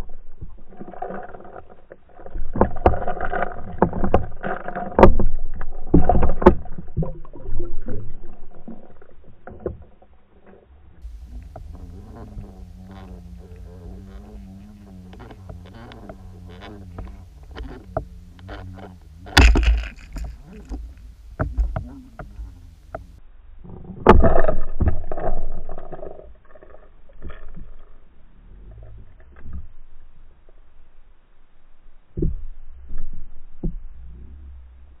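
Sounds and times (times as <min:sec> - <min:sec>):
churning water: 0:00.0 - 0:23.2
underwater knocks and clicks: 0:00.0 - 0:23.2, 0:24.0 - 0:27.8, 0:32.2 - 0:34.0
low underwater rumble: 0:00.0 - 0:35.0
steady hum: 0:11.0 - 0:23.4
loud thumps on camera: 0:19.4 - 0:23.0.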